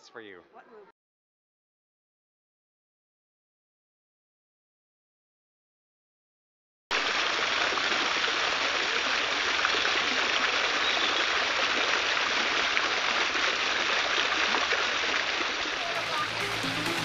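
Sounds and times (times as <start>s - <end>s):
running water rushing: 6.9s - 17.0s.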